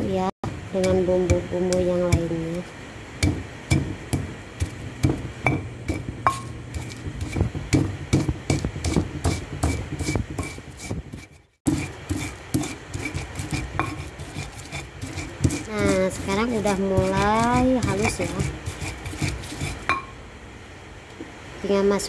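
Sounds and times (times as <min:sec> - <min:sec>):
pestle pounding in stone mortar: 0:00.4 - 0:02.5, 0:03.2 - 0:20.1.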